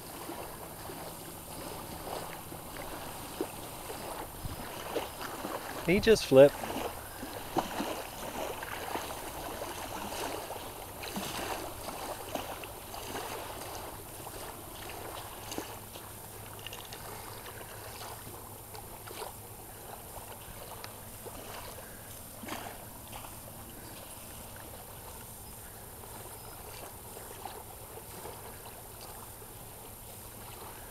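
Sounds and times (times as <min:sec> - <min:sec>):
wind on microphone: 0:00.0 - 0:10.4
water: 0:00.0 - 0:30.9.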